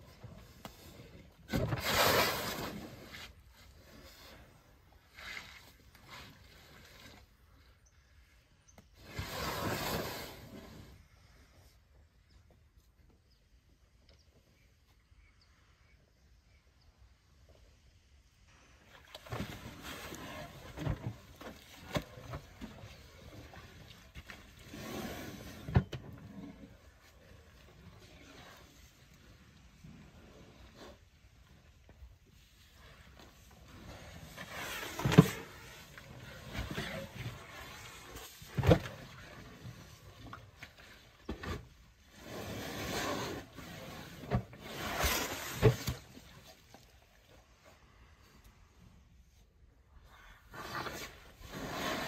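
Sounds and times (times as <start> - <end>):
scraping and squelching in mud: 19.0 - 48.1.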